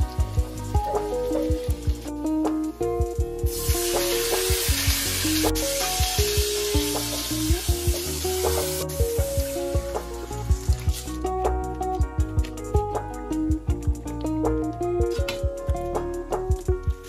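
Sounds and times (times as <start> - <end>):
background music with beat: 0.0 - 17.0
meat sizzling in hot oil: 3.5 - 11.0.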